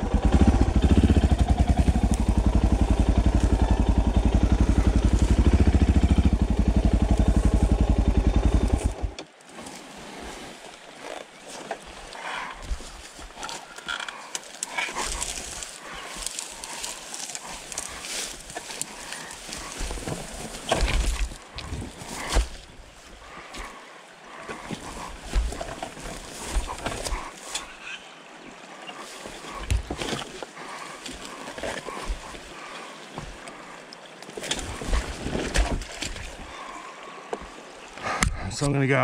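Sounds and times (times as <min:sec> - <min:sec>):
shallow river rushing: 0:00.0 - 0:39.0
motorcycle being moved over rocks: 0:12.6 - 0:22.8, 0:24.5 - 0:27.7, 0:29.1 - 0:32.4, 0:34.2 - 0:36.5.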